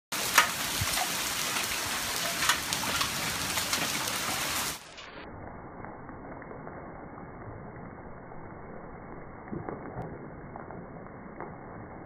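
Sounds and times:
hail pelting water and paving: 0.1s - 5.0s.

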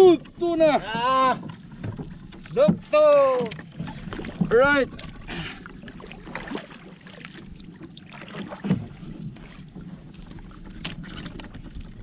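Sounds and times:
water lapping at boat hull: 0.0s - 12.0s
light knocks against boat: 1.0s - 4.6s.

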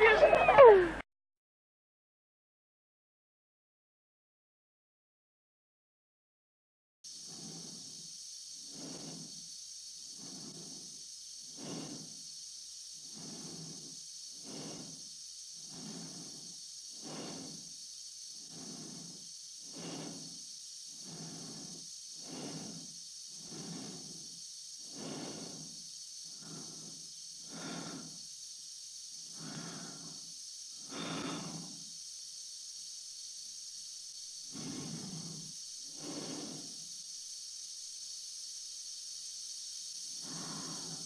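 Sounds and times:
constant hiss: 0.0s - 1.0s, 7.0s - 41.0s
slow breathing in a helmet: 7.1s - 38.3s, 39.6s - 41.0s.

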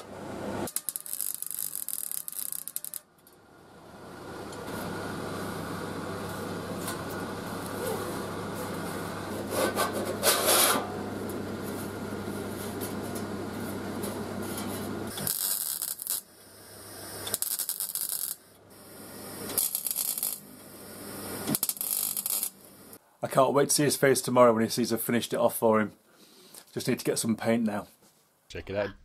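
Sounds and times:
electrical hum: 0.0s - 23.2s
welding crackle: 0.6s - 3.4s, 4.4s - 23.0s.

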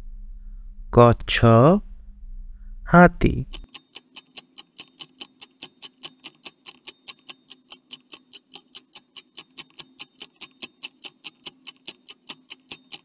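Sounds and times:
faint steady hum: 0.0s - 13.0s
clock ticking: 3.5s - 13.0s.

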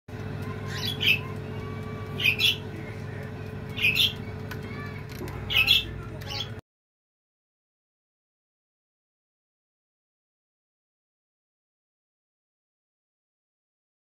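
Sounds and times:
electric oven motor and fan hum: 0.1s - 6.6s
high squeaky chirps: 0.4s - 2.7s, 3.7s - 4.9s.

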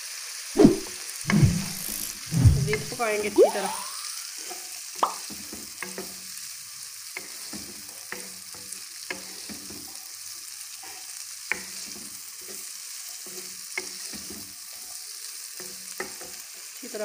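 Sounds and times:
food sizzling in oil: 0.0s - 17.0s
spatula clicking against pan: 11.5s - 11.7s.

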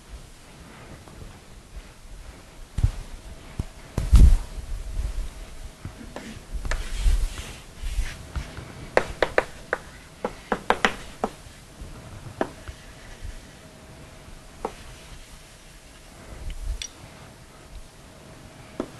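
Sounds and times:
chalk tapping on blackboard: 9.0s - 11.4s.

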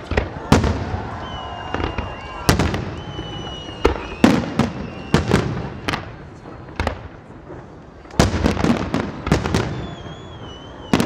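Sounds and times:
fireworks bursting with bangs: 0.0s - 11.0s
fireworks crackle: 0.0s - 11.0s
thin high whistle: 1.2s - 5.3s, 9.7s - 11.0s.

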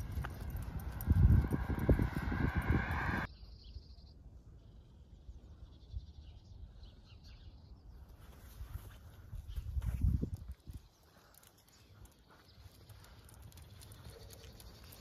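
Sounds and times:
footsteps on pavement: 0.0s - 1.8s, 8.2s - 15.0s
droning tone: 0.0s - 3.3s.

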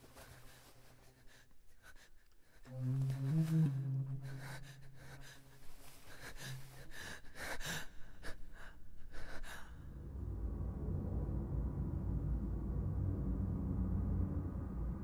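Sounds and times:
low drone: 9.7s - 15.0s.

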